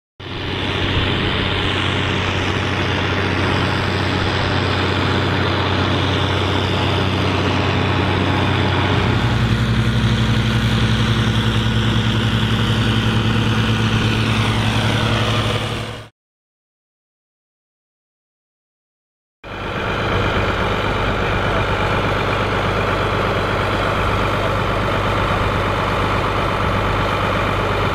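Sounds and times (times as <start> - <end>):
tractor diesel engine under load: 0.2 - 16.1, 19.4 - 27.9.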